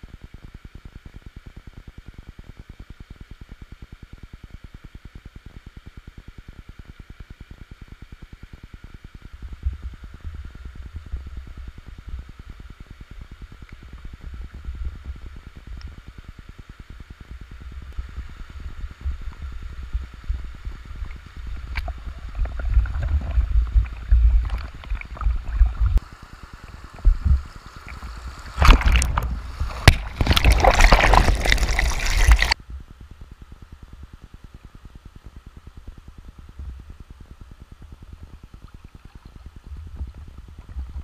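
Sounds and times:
low rumbling: 17.6 - 26.0, 26.7 - 33.3
river water splashing: 21.7 - 32.6.

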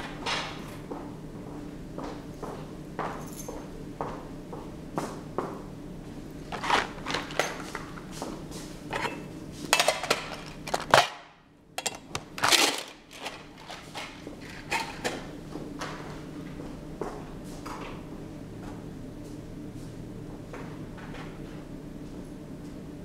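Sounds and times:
steady low hum: 0.0 - 23.0
objects being handled: 6.4 - 8.0, 8.9 - 11.2, 11.8 - 15.2.

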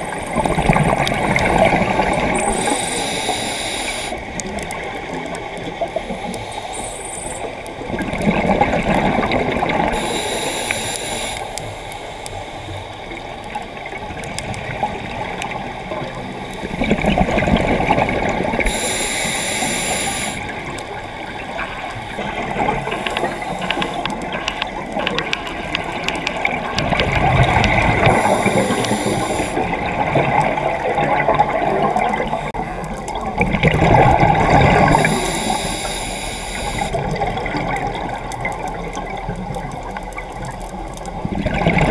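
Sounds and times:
gurgling rush of exhaled bubbles: 0.0 - 6.0, 7.8 - 10.2, 13.8 - 18.9, 19.5 - 35.8, 36.6 - 40.3, 41.1 - 41.9
regulator inhalation hiss: 2.4 - 4.2, 9.9 - 12.8, 18.6 - 20.5, 22.8 - 24.1, 27.6 - 29.6, 34.6 - 37.0.

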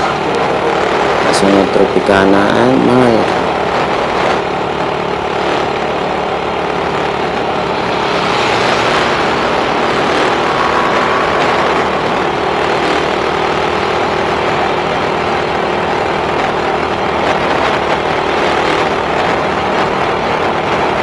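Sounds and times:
rush of air: 6.0 - 14.9
drone motors buzzing: 6.7 - 14.2.

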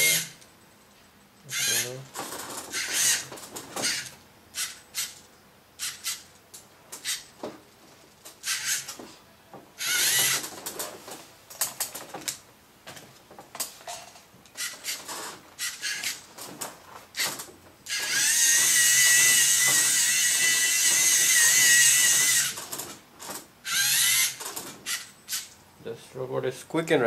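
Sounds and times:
servo motors whining through gears: 9.8 - 10.4, 17.9 - 22.7, 23.7 - 25.5.

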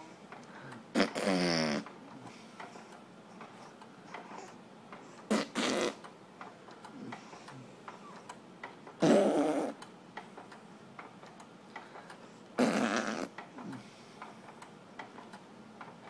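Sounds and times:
breathy vocal bursts: 0.6 - 1.9, 12.6 - 14.0
buzzy vocal noise: 0.9 - 1.9, 5.3 - 6.0, 9.0 - 9.8, 12.6 - 13.9.

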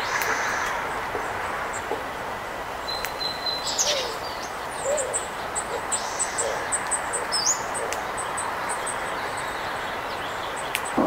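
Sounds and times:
dove cooing: 4.8 - 7.2.

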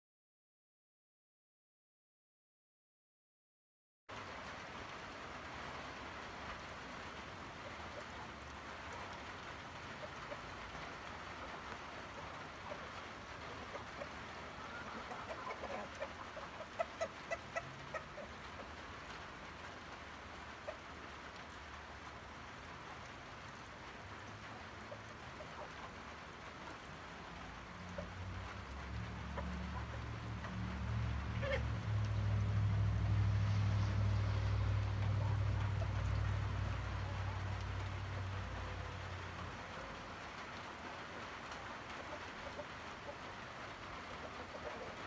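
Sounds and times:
steady background hiss: 4.2 - 45.0
chickens clucking: 6.6 - 21.5, 23.0 - 32.5, 33.8 - 45.0.

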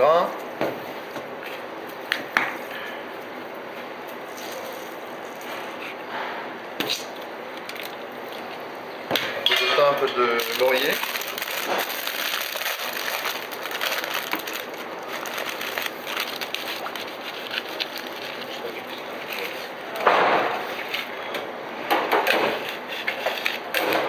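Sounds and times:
dry leaves crackling and rustling: 10.4 - 18.7
plastic bag rustling: 10.4 - 19.6.

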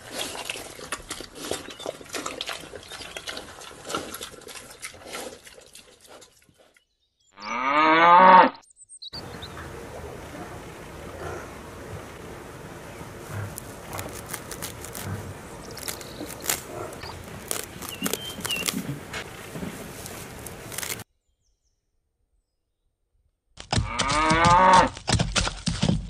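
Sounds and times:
outdoor background noise: 0.0 - 21.1, 23.5 - 26.0
cow mooing: 7.4 - 8.6
sickle snipping grass: 13.3 - 21.0.

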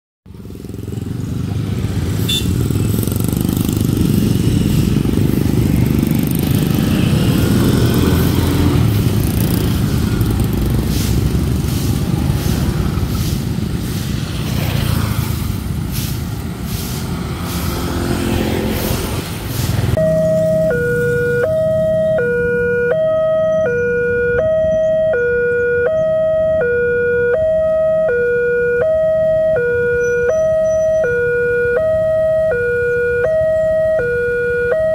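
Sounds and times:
road traffic: 0.2 - 34.9
motorcycles passing: 0.3 - 34.9
two-tone crossing alarm chime: 20.0 - 34.9.

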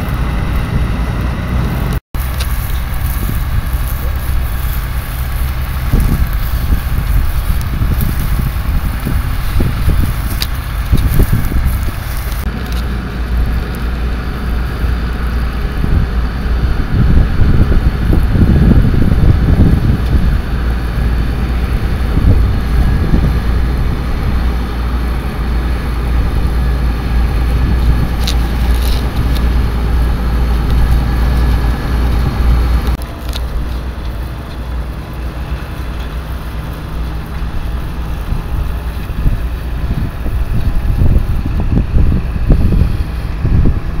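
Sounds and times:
tractor engine running under load: 0.0 - 44.0
wind rumbling on microphone: 0.0 - 44.0.

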